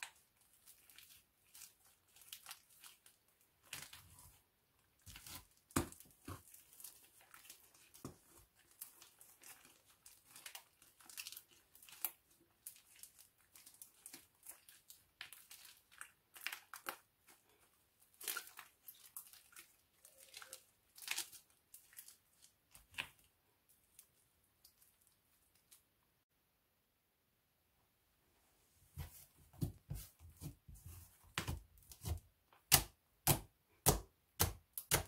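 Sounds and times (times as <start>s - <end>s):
slime crackling when kneaded: 0.0s - 17.4s.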